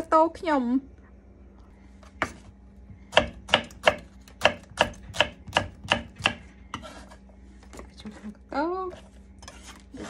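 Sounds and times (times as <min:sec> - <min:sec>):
knife chopping on wooden board: 0:03.1 - 0:07.0.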